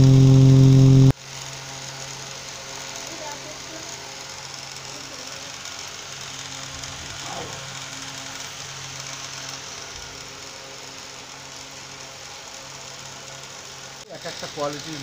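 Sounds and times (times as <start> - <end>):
low engine hum: 0.0 - 1.2
road traffic hiss: 0.0 - 15.0.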